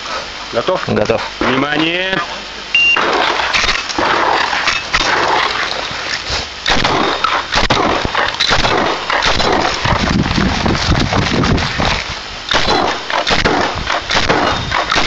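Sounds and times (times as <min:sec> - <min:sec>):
shotgun blasts: 0:02.9 - 0:05.4, 0:06.6 - 0:10.1, 0:12.5 - 0:15.0.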